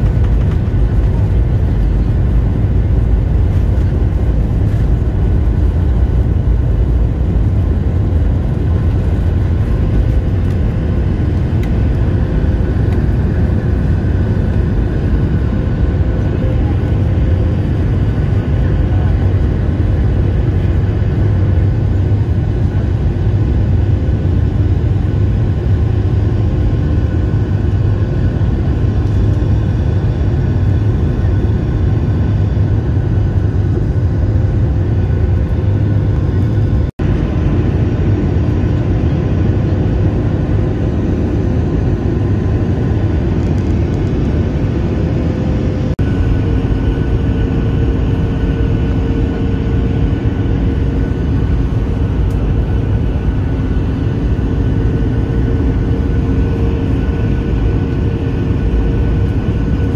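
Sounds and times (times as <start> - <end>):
faint steady whines: 0.0 - 59.9
jet engines roaring in cabin: 0.0 - 59.9.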